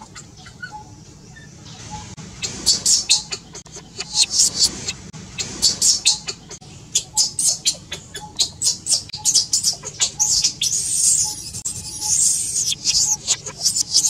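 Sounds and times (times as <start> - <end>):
infant monkey screaming: 5.6 - 14.0.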